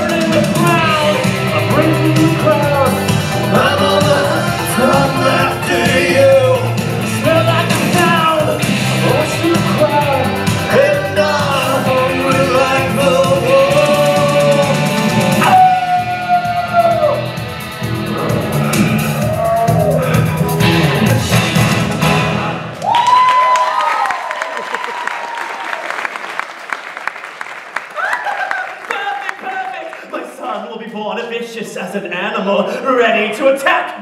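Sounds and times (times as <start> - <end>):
rock song with singer and band: 0.0 - 22.5.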